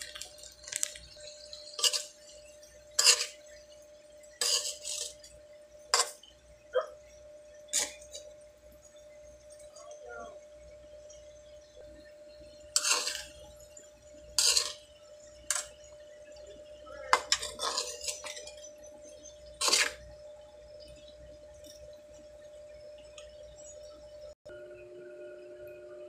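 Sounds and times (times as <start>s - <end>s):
faint steady hum: 0.0s - 26.0s
metal ladle scraping a wok: 0.1s - 6.3s, 7.6s - 8.4s, 12.6s - 13.6s, 14.2s - 15.9s, 17.0s - 20.2s.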